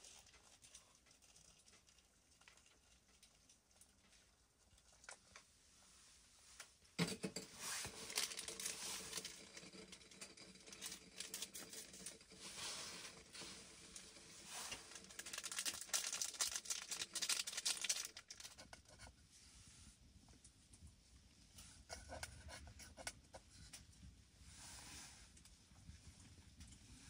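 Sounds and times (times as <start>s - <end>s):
plastic packet crinkling: 7.8s - 12.4s, 14.0s - 19.0s.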